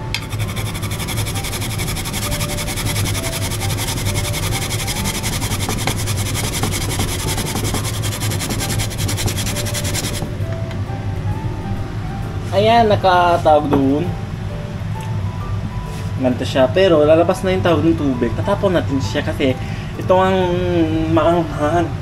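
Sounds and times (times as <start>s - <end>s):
radish grating on hand grater: 0.2s - 10.2s.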